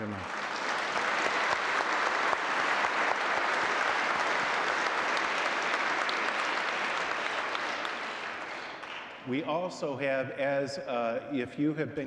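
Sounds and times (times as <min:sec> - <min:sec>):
congregation applauding: 0:00.0 - 0:09.5.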